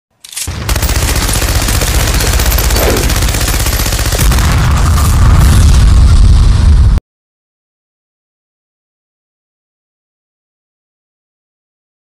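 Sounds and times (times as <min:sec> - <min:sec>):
machine-gun fire: 0:00.4 - 0:06.1.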